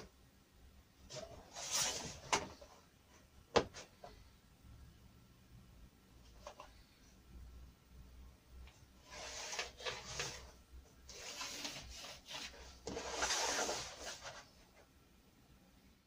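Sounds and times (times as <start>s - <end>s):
steel rule and pencil scraping board: 9.0s - 10.4s, 11.1s - 14.4s.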